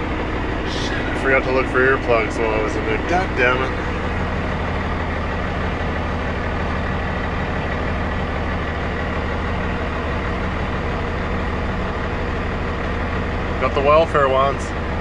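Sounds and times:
diesel truck engine drone: 0.0 - 15.0.

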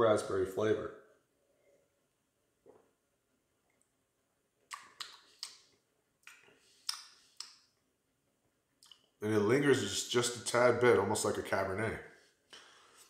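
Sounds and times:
tongue clicks: 4.6 - 7.7, 8.8 - 9.1
lip smacks: 4.6 - 7.8, 8.7 - 9.2.

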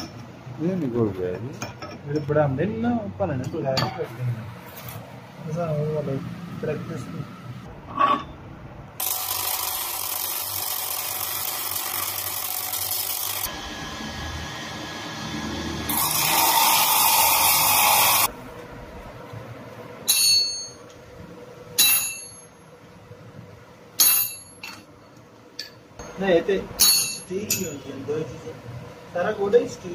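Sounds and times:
ringing metal clinks: 20.1 - 20.8, 21.8 - 22.6, 24.0 - 24.8, 26.8 - 27.8.

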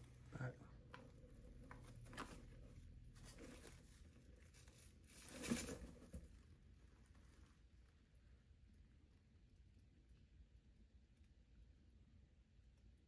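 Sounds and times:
hawk feathers rustling: 0.8 - 8.2.

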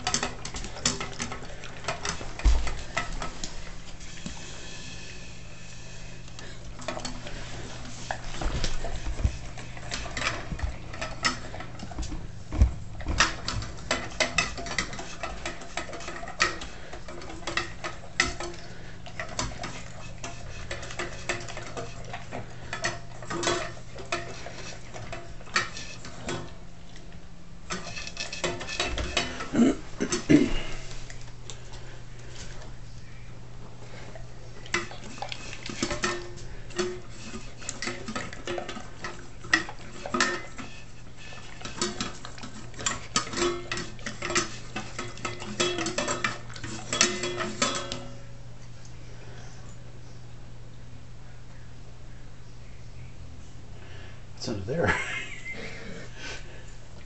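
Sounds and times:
dog chewing and lapping: 0.0 - 4.7, 6.4 - 32.8, 33.7 - 47.9.

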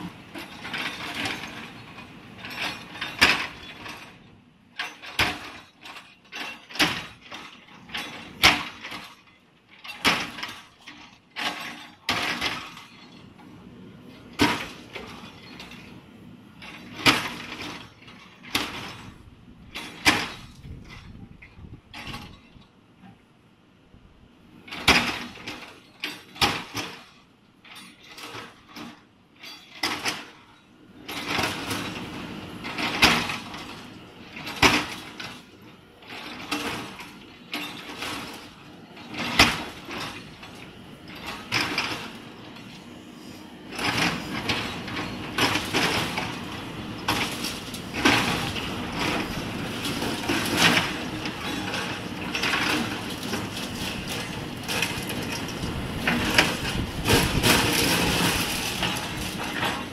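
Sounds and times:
diesel engine running under load: 30.3 - 59.9.

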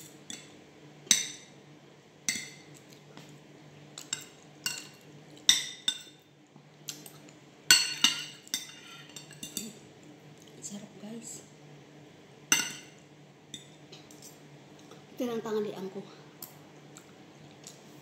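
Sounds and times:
cutlery clinking on ceramic plate: 7.7 - 9.7, 12.5 - 13.0.

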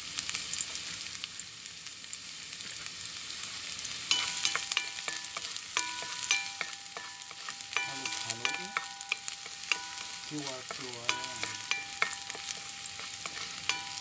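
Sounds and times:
garlic sizzling in oil: 0.0 - 14.0
high steady tones: 4.1 - 14.0
spatula clicking against pan: 4.1 - 14.0.

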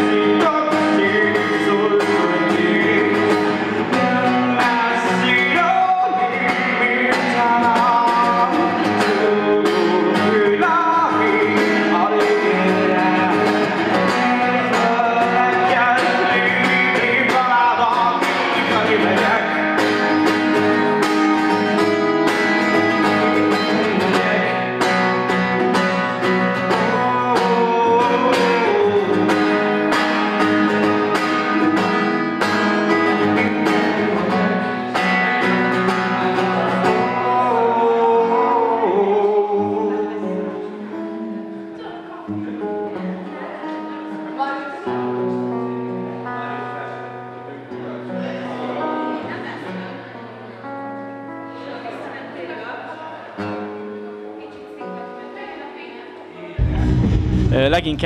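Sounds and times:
man singing: 0.0 - 21.6, 22.7 - 32.0, 33.1 - 40.8, 56.6 - 58.0
acoustic guitar strumming: 0.0 - 51.6, 53.3 - 55.3, 56.6 - 58.0.

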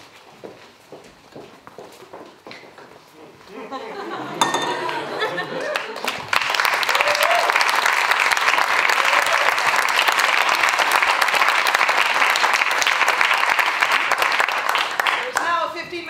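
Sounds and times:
audience applauding: 4.8 - 15.7.

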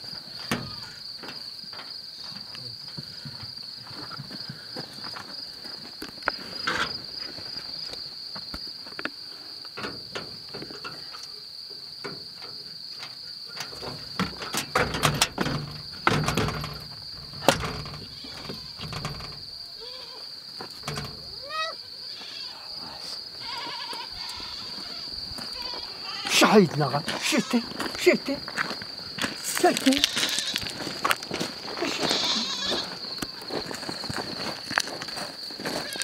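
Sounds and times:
crickets chirring: 0.0 - 36.0
wooden door rattling: 13.6 - 19.6, 20.8 - 21.4.

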